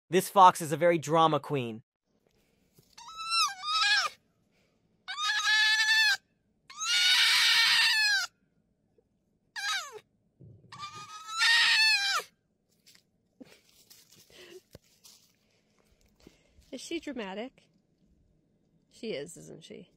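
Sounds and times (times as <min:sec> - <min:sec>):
fox screaming: 0:03.0 - 0:04.2, 0:05.1 - 0:08.3, 0:09.6 - 0:10.0, 0:10.7 - 0:12.3
fox yelp: 0:03.0 - 0:04.2, 0:05.1 - 0:08.3, 0:09.6 - 0:10.0, 0:10.8 - 0:12.3.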